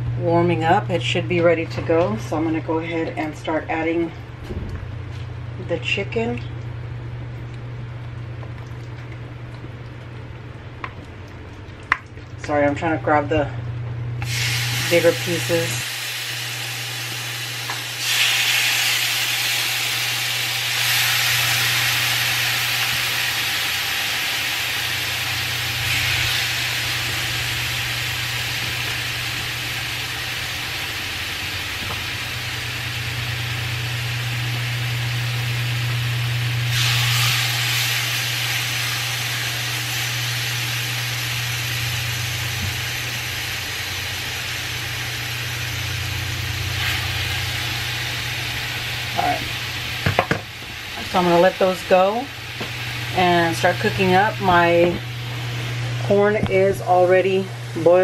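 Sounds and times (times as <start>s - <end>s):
low hum: 0.0s - 19.0s, 24.8s - 58.0s
chicken sizzling in frying pan: 14.2s - 55.8s.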